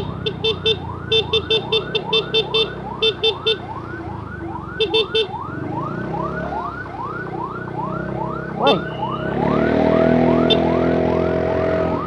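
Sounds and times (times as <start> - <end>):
horn beeping: 0.0 - 3.7, 4.8 - 5.4, 8.5 - 9.6
ambulance siren: 0.0 - 12.0.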